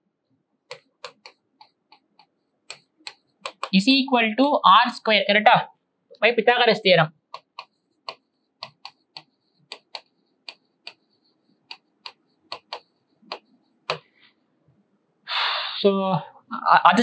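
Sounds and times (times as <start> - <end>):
chalk tapping on chalkboard: 0.7 - 3.8, 7.3 - 14.1.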